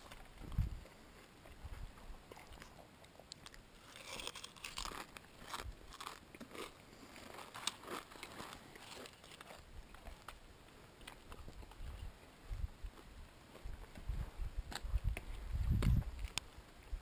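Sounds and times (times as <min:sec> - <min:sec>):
person chewing crunchy cereal: 0:02.3 - 0:10.4.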